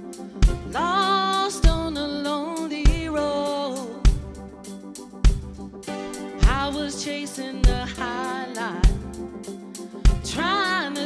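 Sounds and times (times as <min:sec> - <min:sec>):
bass drum hits: 0:00.5 - 0:00.8
woman singing: 0:00.6 - 0:04.1, 0:06.4 - 0:09.1, 0:10.2 - 0:11.0
worship band playing: 0:03.0 - 0:11.0.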